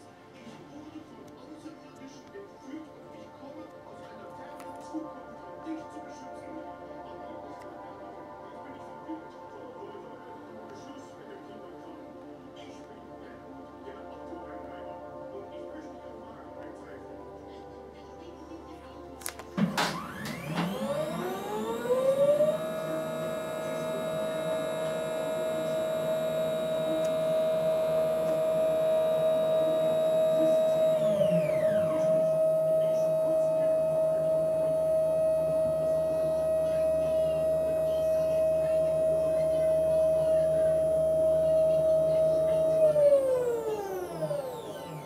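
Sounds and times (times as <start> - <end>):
telescope motors whining: 19.7 - 45.0.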